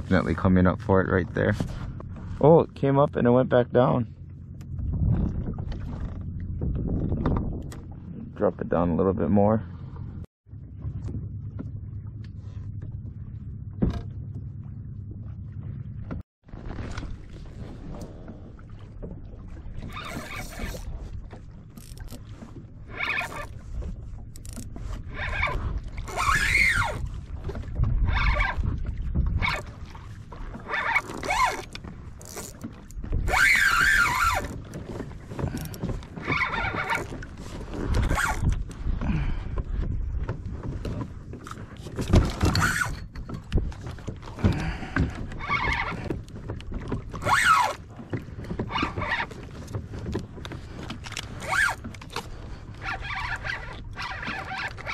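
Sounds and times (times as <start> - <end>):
water rumbling: 0.0 - 54.9
wind: 0.0 - 54.9
fishing line squealing: 19.8 - 21.0, 22.9 - 23.6, 25.0 - 27.2, 28.0 - 28.6, 30.6 - 32.6, 33.2 - 34.6, 36.2 - 37.2, 38.0 - 38.5, 42.4 - 43.1, 45.3 - 46.1, 47.1 - 47.8, 48.7 - 49.4, 51.3 - 52.2, 52.8 - 54.9.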